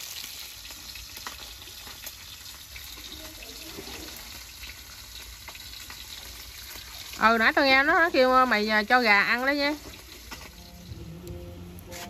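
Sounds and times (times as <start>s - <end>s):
fish sizzling in oil: 0.0s - 12.0s
oil popping: 9.7s - 12.0s.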